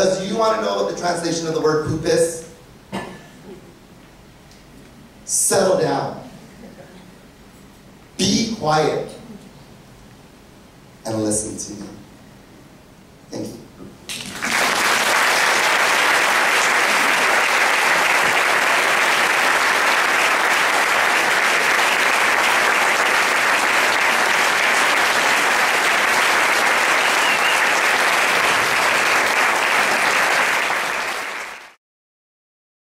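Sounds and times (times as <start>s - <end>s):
audience applauding: 14.1s - 31.8s.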